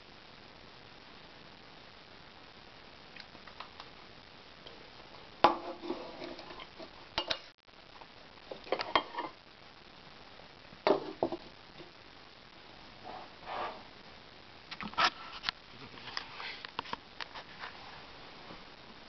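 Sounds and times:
cutlery and dishes clinking: 5.5 - 7.5.

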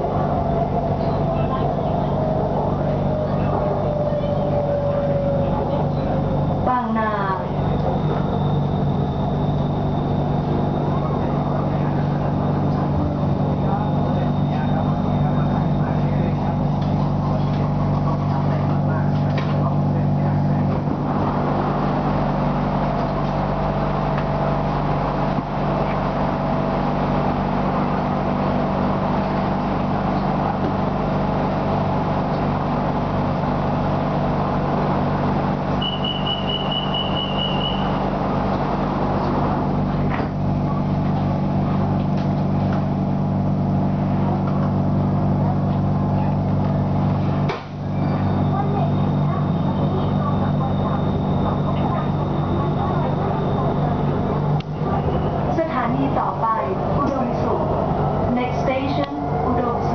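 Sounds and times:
train car electrical hum: 0.0 - 59.9
rapid high door warning beeps: 35.8 - 38.2.

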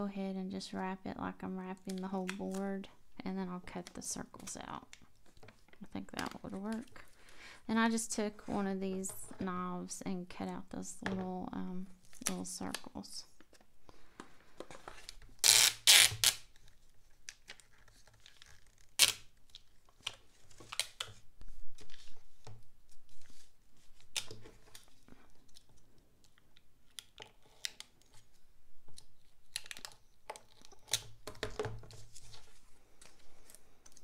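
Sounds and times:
tape crinkling and tapping: 3.7 - 7.1, 12.0 - 34.0
packing tape tearing off roll: 14.9 - 21.2.

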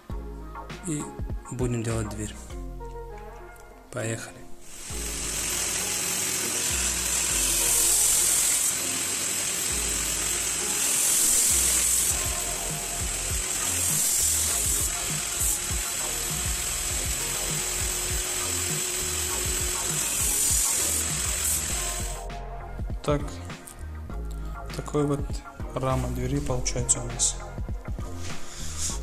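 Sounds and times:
background music: 0.0 - 29.0
angle grinder cutting metal: 4.6 - 22.3.

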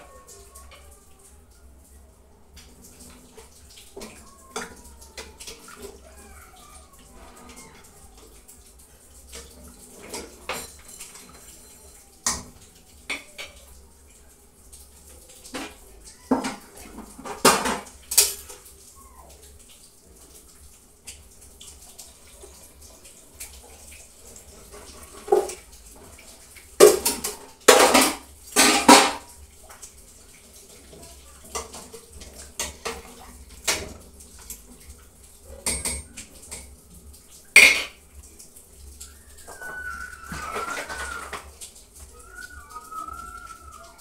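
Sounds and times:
metal pots and spoon clanking: 10.0 - 12.5, 26.8 - 29.2.

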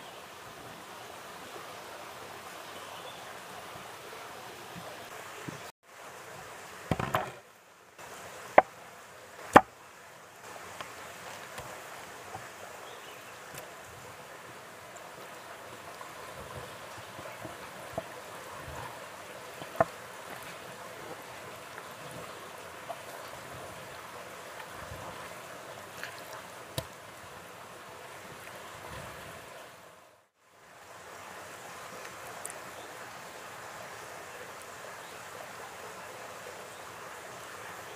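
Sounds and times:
steady rushing hiss: 0.0 - 37.9
knocks on wooden cutting board: 6.9 - 7.4.

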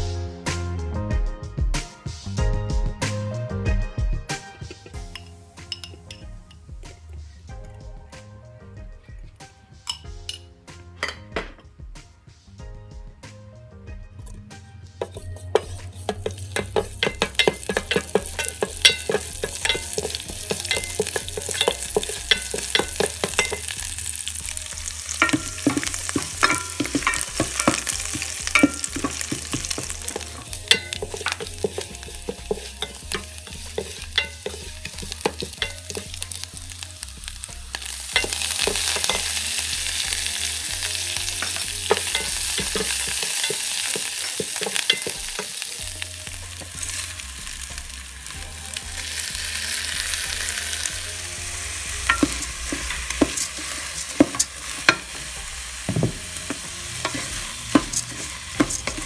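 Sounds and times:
chillies frying in hot oil: 15.0 - 59.0.

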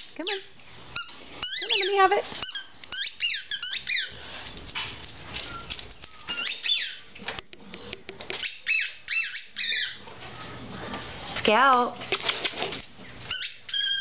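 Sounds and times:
squeaky ball chewed by dog: 0.9 - 4.6, 5.4 - 7.0, 8.3 - 11.4, 12.1 - 14.0.

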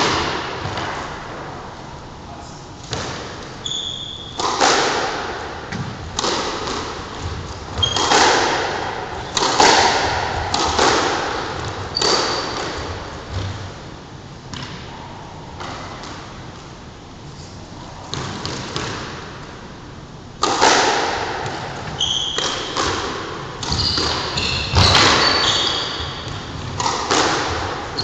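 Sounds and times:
squash ball hits with echo: 0.0 - 1.6, 2.8 - 13.8, 14.5 - 16.8, 18.1 - 19.4, 20.4 - 28.0
shoes squeaking on court floor: 3.6 - 4.5, 7.2 - 8.3, 11.9 - 13.6, 21.9 - 22.8, 23.6 - 28.0.

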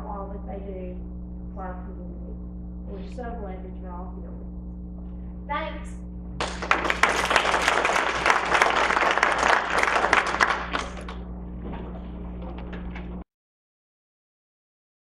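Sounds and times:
low hum: 0.0 - 13.2
audience applauding: 6.4 - 11.2.

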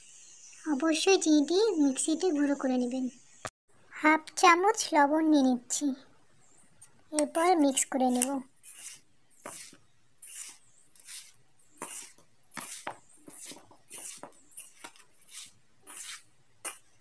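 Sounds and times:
hand mixing flour in steel bowl: 7.2 - 17.0.

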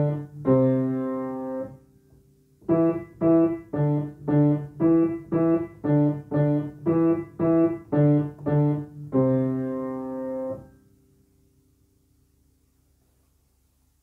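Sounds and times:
piano melody: 0.0 - 2.0, 2.6 - 11.0.

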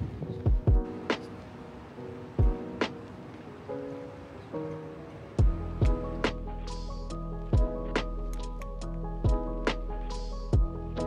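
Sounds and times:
music with held chords: 0.0 - 11.0
kick drum thumps: 0.5 - 0.9, 5.4 - 6.1.

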